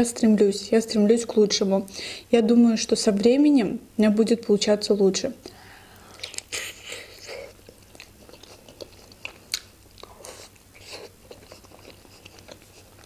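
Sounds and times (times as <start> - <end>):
soft chewing: 5.9 - 13.0
biting into dumplings: 6.1 - 13.0.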